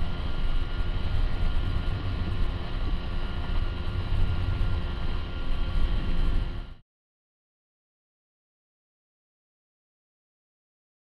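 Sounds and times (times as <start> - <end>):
boat motor droning: 0.0 - 6.8
wind rumble on microphone: 0.0 - 6.8.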